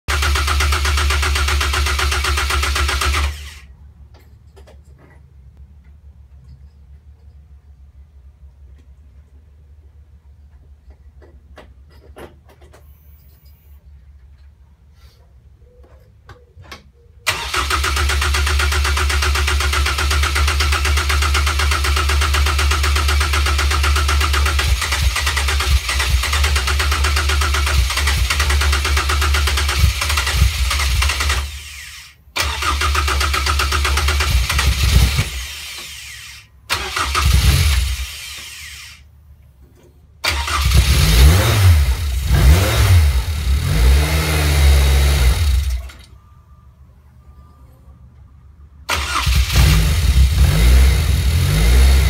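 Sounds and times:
engine cranking on starter: 0.1 - 3.7, 17.3 - 39.0, 40.2 - 46.2, 48.8 - 52.0.

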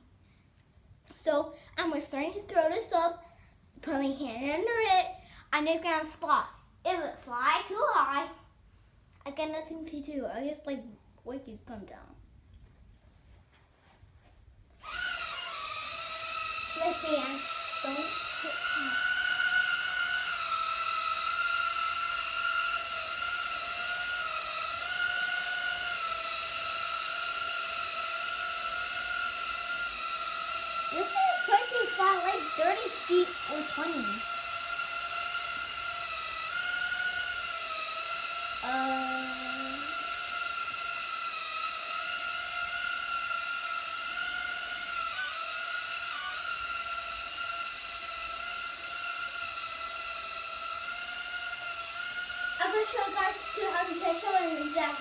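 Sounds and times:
toy drone propellers whining: 14.8 - 55.0.

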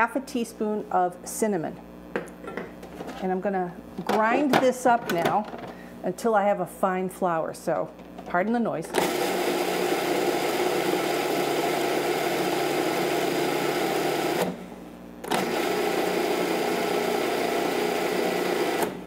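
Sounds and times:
food processor grinding oats: 8.9 - 14.6, 15.2 - 19.0.

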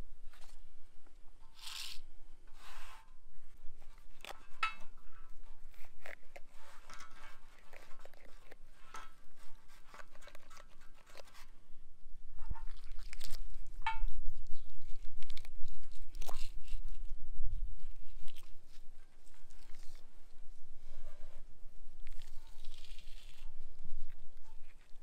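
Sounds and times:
snake skin tearing and crackling: 1.5 - 2.1, 22.0 - 25.0.

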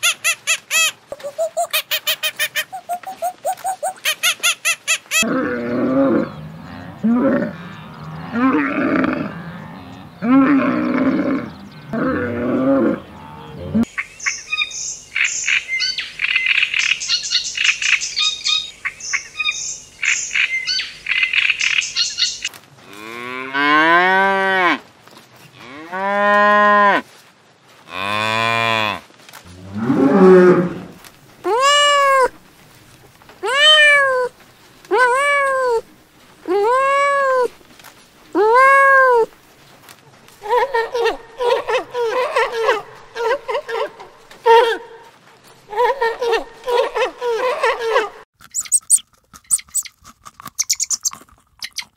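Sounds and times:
high rapid chirping: 0.0 - 5.2, 48.5 - 50.0, 50.6 - 51.9
camel grumbling: 5.2 - 13.9
cow mooing: 5.2 - 13.9, 28.0 - 31.0.

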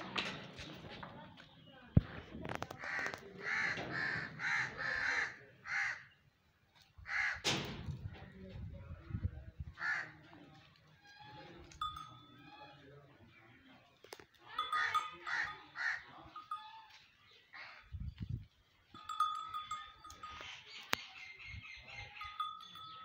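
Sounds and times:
crows cawing: 2.8 - 6.2, 7.0 - 7.5, 9.8 - 10.2, 14.8 - 16.1.

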